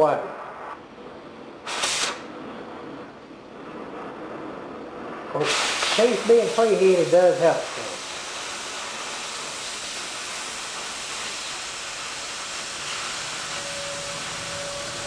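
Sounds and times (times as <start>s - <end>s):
cutting torch hissing: 1.6s - 2.5s, 4.2s - 15.0s
steady high tone: 13.2s - 15.0s.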